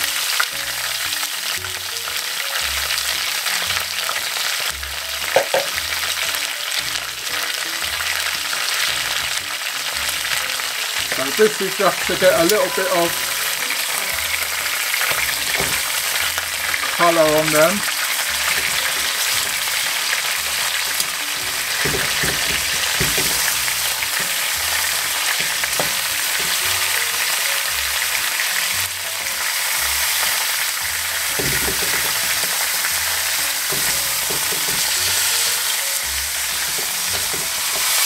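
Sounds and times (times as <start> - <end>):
meat sizzling in hot oil: 0.0 - 38.0
metal tongs knocking and scraping: 18.5 - 19.8, 20.6 - 26.6, 31.4 - 32.6, 33.6 - 35.1, 36.6 - 38.0.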